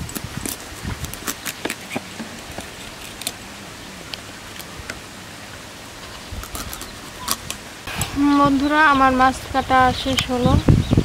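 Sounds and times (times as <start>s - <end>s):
knife scraping fish scales: 0.1s - 3.4s.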